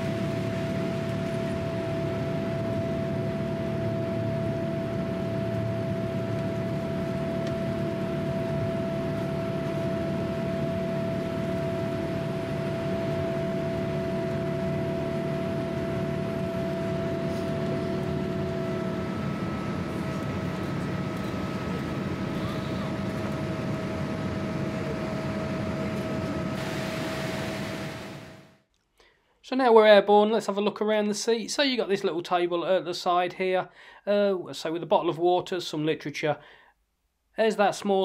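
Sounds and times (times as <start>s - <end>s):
jet engine and air rush: 26.2s - 28.5s.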